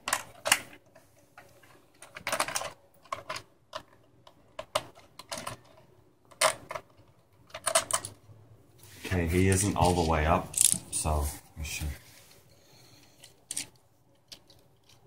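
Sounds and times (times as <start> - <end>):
plastic parts clicking and rattling: 0.0 - 8.3, 9.5 - 10.9, 13.0 - 15.0.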